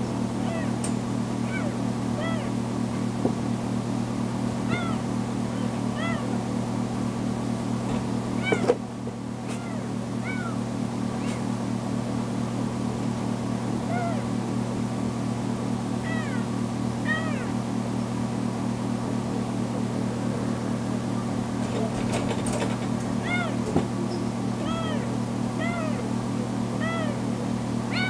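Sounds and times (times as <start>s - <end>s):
steady low hum: 0.0s - 28.0s
kitten meowing: 0.4s - 0.8s, 1.4s - 2.6s, 4.7s - 6.4s, 8.4s - 8.8s, 9.5s - 10.6s, 13.9s - 14.3s, 16.0s - 17.6s, 23.2s - 23.6s, 24.6s - 26.1s, 26.8s - 27.2s.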